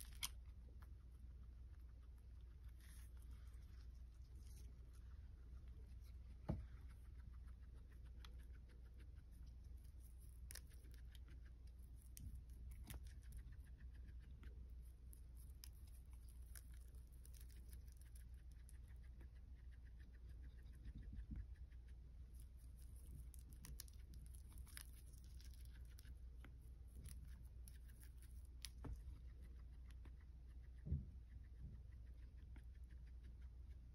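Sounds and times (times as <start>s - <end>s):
guinea pig chewing leaf: 0.0s - 33.9s.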